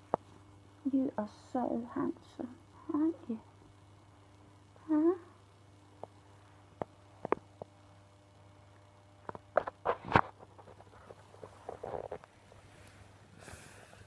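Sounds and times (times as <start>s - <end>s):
rustling: 9.4s - 14.0s.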